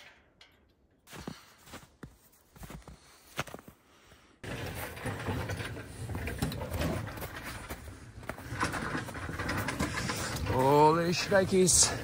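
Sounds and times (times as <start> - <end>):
footsteps in snow: 1.1 - 3.9
cart rolling on snow: 4.4 - 12.0.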